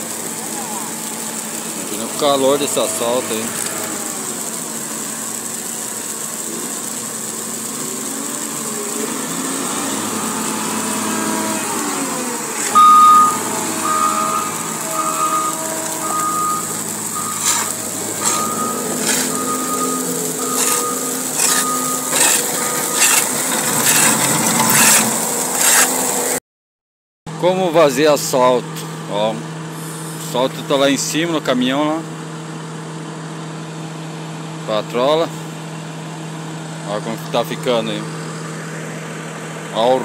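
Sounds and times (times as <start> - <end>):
diesel engine running: 0.0 - 26.4
reversing alarm beeping: 9.8 - 25.0.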